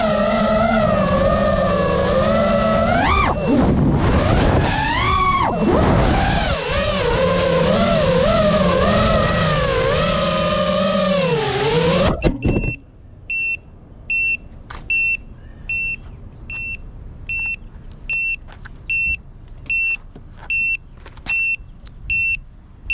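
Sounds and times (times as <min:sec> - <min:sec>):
drone motors whining: 0:00.0 - 0:12.9
short high buzzer beeps: 0:12.2 - 0:22.4.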